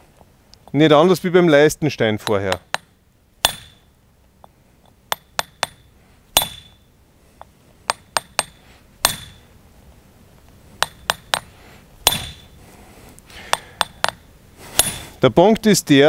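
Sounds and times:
hammer striking chisel on stone: 0:02.2 - 0:03.8, 0:05.1 - 0:06.8, 0:07.9 - 0:09.4, 0:10.8 - 0:12.5, 0:13.5 - 0:14.2, 0:14.8 - 0:15.0.

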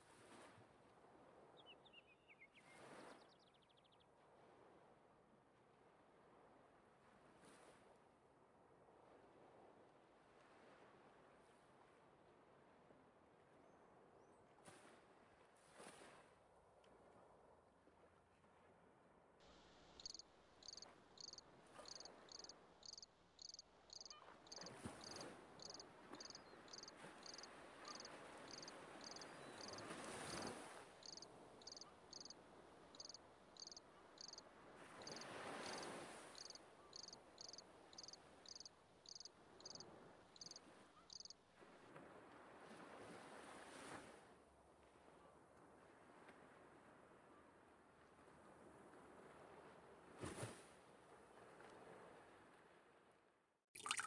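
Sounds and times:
faint insect chirping: 0:19.7 - 0:34.4, 0:35.0 - 0:39.8, 0:40.4 - 0:41.4.

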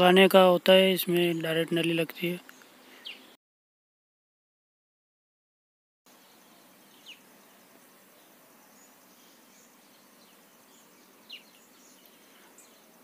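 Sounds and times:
faint background hiss: 0:00.0 - 0:03.4, 0:06.1 - 0:13.0.

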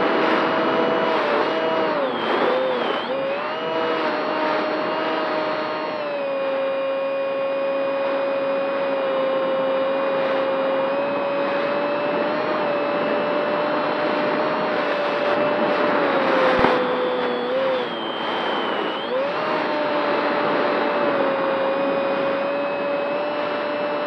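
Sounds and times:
model airplane motor whining: 0:00.0 - 0:24.0
rush of air: 0:13.7 - 0:19.5.

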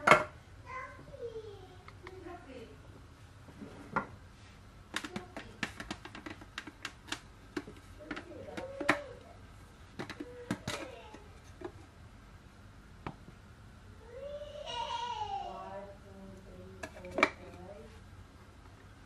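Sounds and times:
plastic blender parts clicking: 0:04.9 - 0:09.2, 0:10.0 - 0:11.8.

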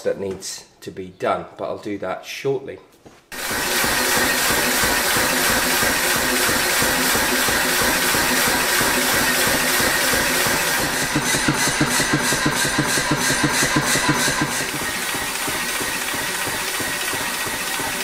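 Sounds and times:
power hammer pulsing: 0:03.3 - 0:18.0.

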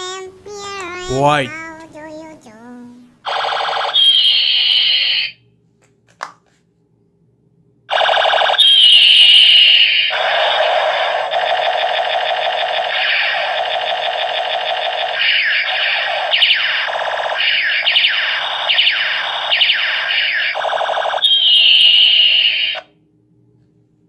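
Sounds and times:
toy gun electronic zaps: 0:03.3 - 0:05.4, 0:07.9 - 0:22.9.

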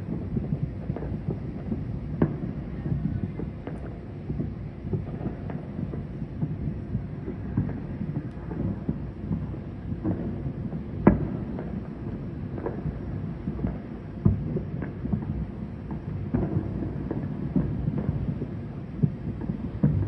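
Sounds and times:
distant fireworks rumbling: 0:00.0 - 0:20.0
loud firework bang: 0:07.3 - 0:20.0.

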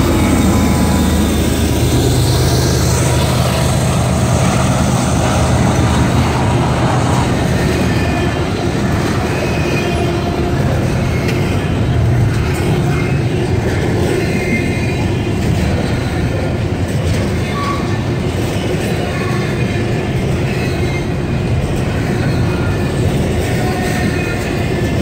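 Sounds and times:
train rumbling by: 0:00.0 - 0:25.0.

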